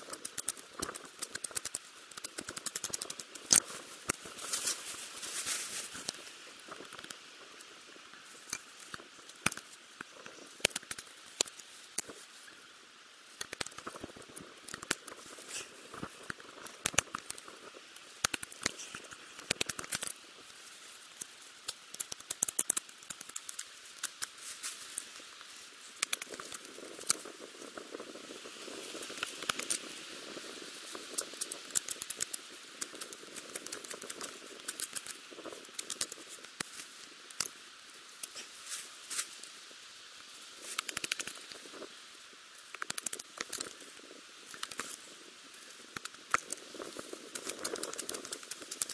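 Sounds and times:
rustling: 0:00.0 - 0:07.1
quick clicks: 0:00.1 - 0:04.2, 0:47.4 - 0:48.9.

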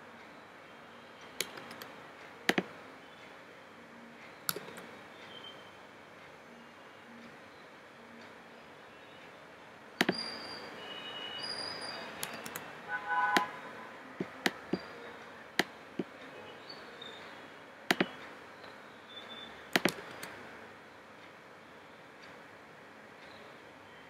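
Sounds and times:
computer mouse clicking: 0:01.3 - 0:01.9, 0:02.5 - 0:02.7, 0:04.5 - 0:04.9, 0:12.2 - 0:12.7, 0:17.9 - 0:18.3, 0:19.7 - 0:20.4.

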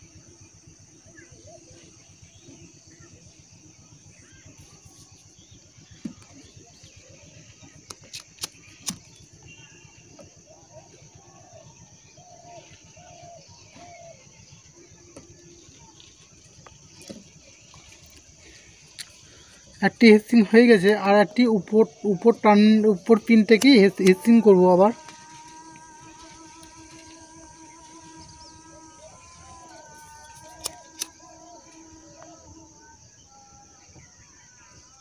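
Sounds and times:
gas lighter clicking: 0:07.9 - 0:09.1, 0:30.4 - 0:31.1.

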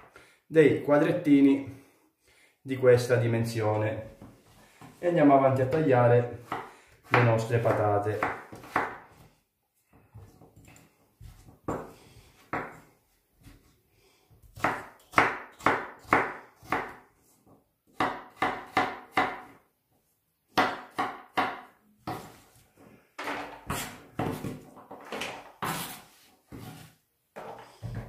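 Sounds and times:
knife chopping on wooden board: 0:06.4 - 0:09.2, 0:11.3 - 0:12.8, 0:14.4 - 0:17.0, 0:17.9 - 0:19.6, 0:20.5 - 0:22.4.

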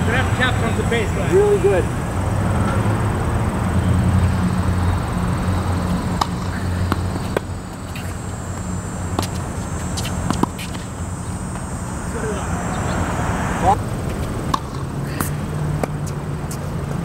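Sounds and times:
steady low rumble: 0:00.0 - 0:16.4
tennis ball hits and bounces: 0:06.0 - 0:11.7, 0:14.0 - 0:16.7.

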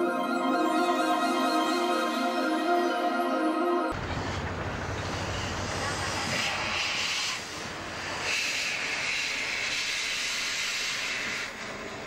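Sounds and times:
steam locomotive hissing: 0:04.0 - 0:12.0.

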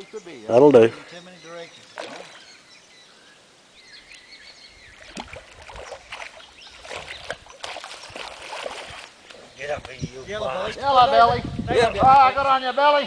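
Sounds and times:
fish splashing at water surface: 0:02.0 - 0:02.4, 0:05.0 - 0:09.2.

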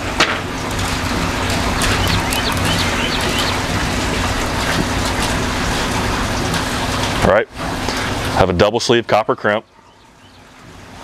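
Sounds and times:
low hum: 0:00.0 - 0:08.4
small bird chirping: 0:01.8 - 0:03.7.

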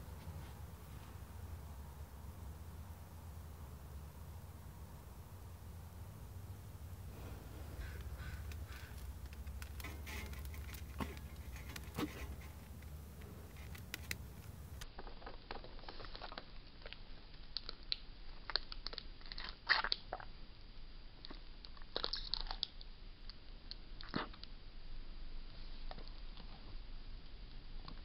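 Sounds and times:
low hum: 0:00.0 - 0:15.9
faint clicks and ticks: 0:07.8 - 0:19.0.

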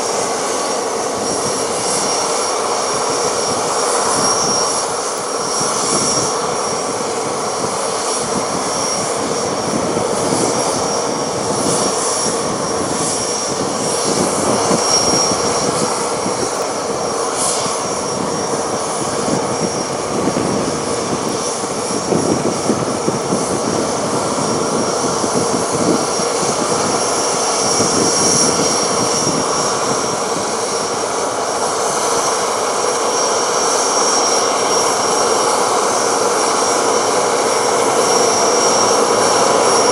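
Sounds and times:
jet engine rumble with whine: 0:00.0 - 0:39.9.

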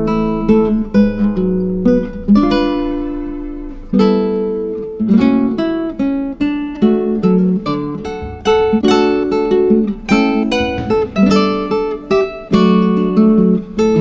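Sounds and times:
acoustic guitar chords: 0:00.0 - 0:14.0.

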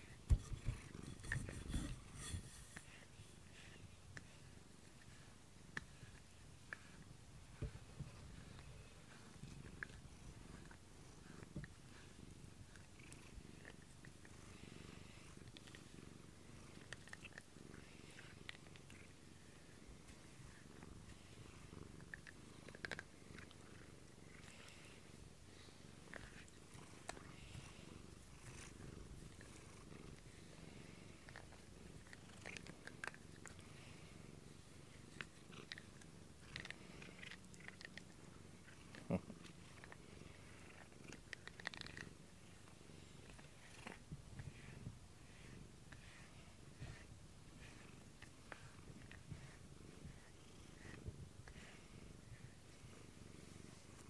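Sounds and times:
cat purring: 0:00.0 - 0:54.0.

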